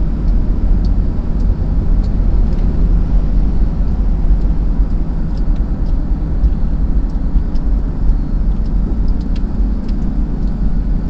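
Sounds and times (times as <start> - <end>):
car engine and tyre rumble: 0.0 - 11.0
faint small ticks: 4.3 - 10.8.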